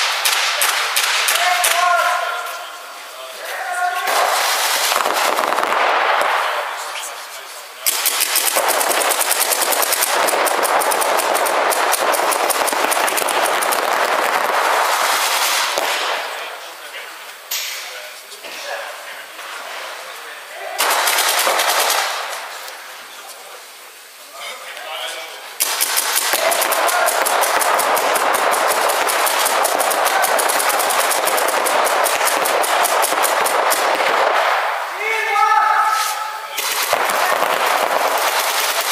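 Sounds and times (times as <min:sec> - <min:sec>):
paintball markers firing: 0:07.8 - 0:14.6, 0:20.8 - 0:22.1, 0:25.6 - 0:34.6, 0:36.6 - 0:38.9.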